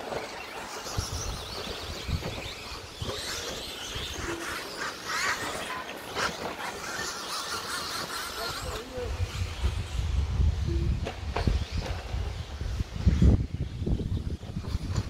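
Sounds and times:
tyres scrabbling on dirt: 0.0s - 9.9s
toy truck motors whining: 0.0s - 10.1s.

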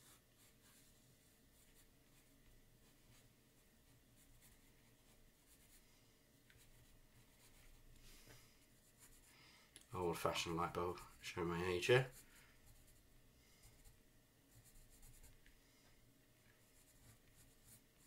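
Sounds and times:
pencil scratching on paper: 0.0s - 1.0s, 3.9s - 5.9s, 6.5s - 7.9s, 8.8s - 9.3s, 10.3s - 15.5s, 16.6s - 18.0s.

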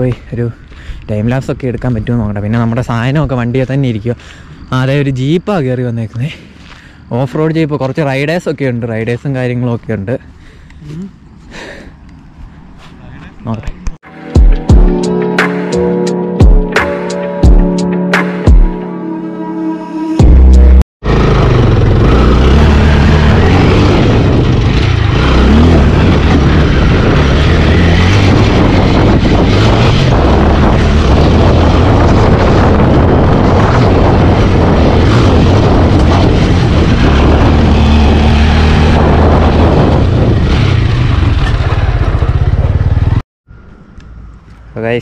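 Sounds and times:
motorcycle engine running: 20.2s - 43.2s
wind rumble on camera: 21.6s - 43.2s.

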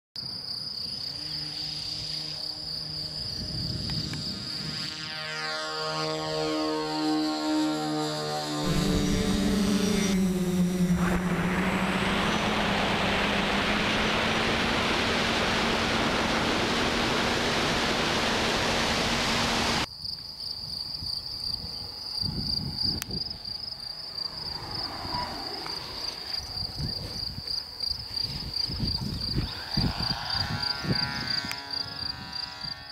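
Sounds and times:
high insect trill: 0.2s - 7.1s, 19.8s - 32.9s
model plane motor whine: 0.9s - 19.9s, 24.2s - 27.1s, 28.3s - 32.9s
steady rushing noise with low hum: 8.6s - 19.9s
wind buffeting microphone: 8.7s - 19.9s, 24.4s - 32.9s.

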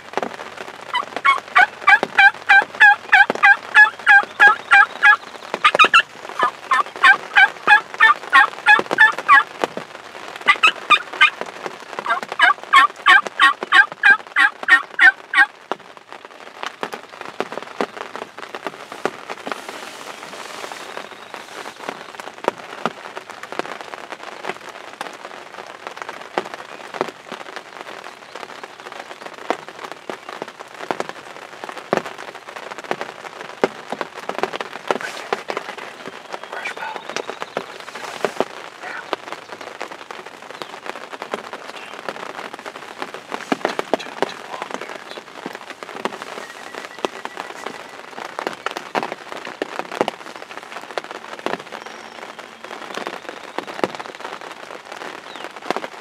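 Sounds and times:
rain pattering on fabric: 0.0s - 56.0s
turkey yelping: 0.9s - 9.5s, 10.5s - 11.4s, 12.0s - 15.5s.

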